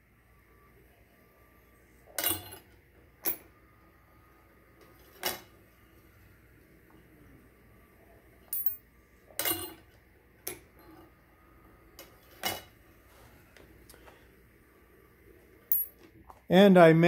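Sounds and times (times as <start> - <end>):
metal cases clinking: 8.5 - 8.8.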